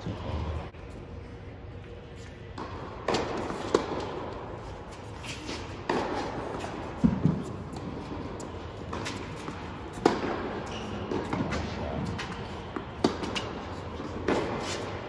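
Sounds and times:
tennis ball struck by racket: 0:02.6 - 0:04.2, 0:08.8 - 0:14.9
tennis ball bouncing on hard court: 0:02.6 - 0:04.4, 0:05.3 - 0:14.9.

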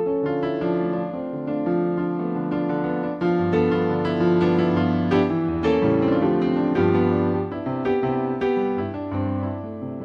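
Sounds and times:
solo piano music: 0:00.0 - 0:10.0.

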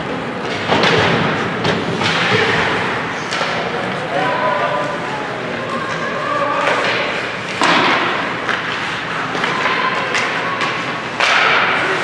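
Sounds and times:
puck banging boards: 0:00.4 - 0:03.8, 0:06.6 - 0:12.0
hockey stick clacks: 0:03.2 - 0:04.0, 0:06.6 - 0:12.0.

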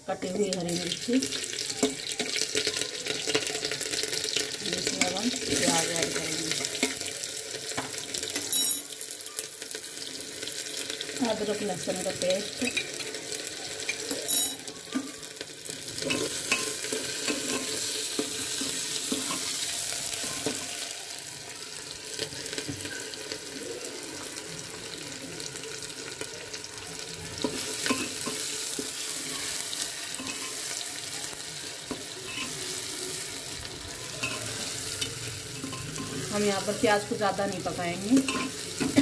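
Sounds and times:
onions sizzling in hot oil: 0:00.0 - 0:39.0
metal spoon scraping and stirring: 0:27.4 - 0:30.8, 0:31.8 - 0:32.9, 0:34.1 - 0:36.8, 0:38.2 - 0:39.0.

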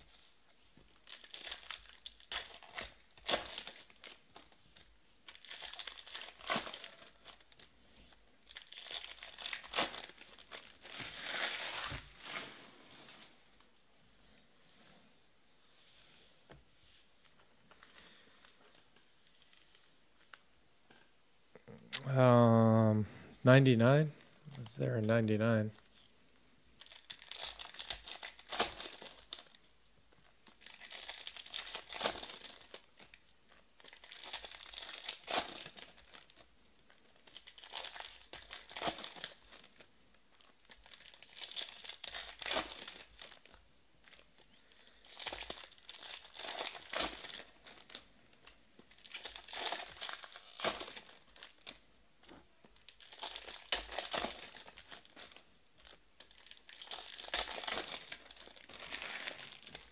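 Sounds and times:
foil packs tearing and crinkling: 0:01.0 - 0:04.5, 0:05.3 - 0:07.7, 0:08.4 - 0:12.6, 0:26.8 - 0:29.6, 0:30.5 - 0:33.2, 0:33.8 - 0:36.5, 0:37.2 - 0:39.9, 0:40.6 - 0:51.8, 0:52.8 - 0:59.9.

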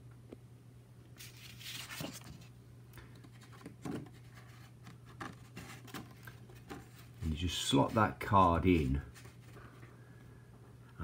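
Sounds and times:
low steady hum: 0:00.0 - 0:11.0
card rustling and scraping: 0:01.2 - 0:09.6.

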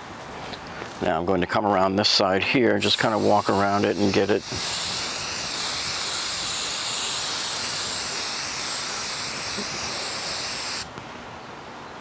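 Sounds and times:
aerosol can spraying hiss: 0:02.8 - 0:10.9.

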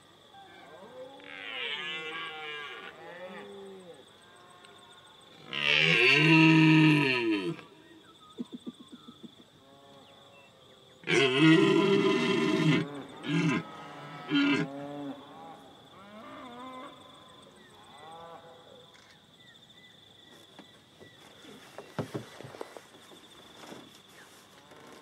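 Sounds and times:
large animal calling: 0:11.0 - 0:14.8.

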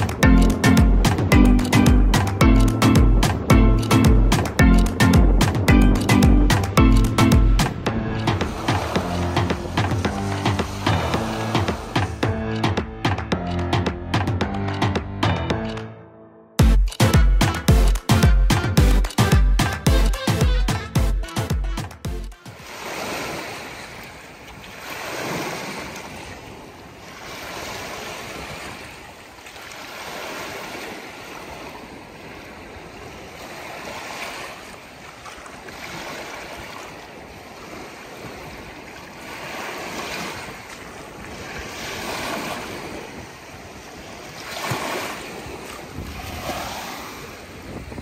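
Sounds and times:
waves washing on sandy shore: 0:00.0 - 0:02.3, 0:03.2 - 0:12.2, 0:22.4 - 0:48.0
wind buffeting microphone: 0:00.0 - 0:12.2, 0:37.2 - 0:48.0.

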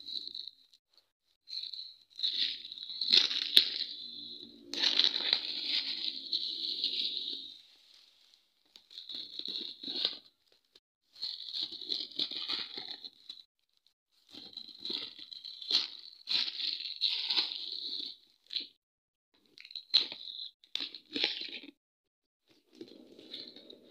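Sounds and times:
plastic bag tearing and crinkling: 0:04.7 - 0:07.2.

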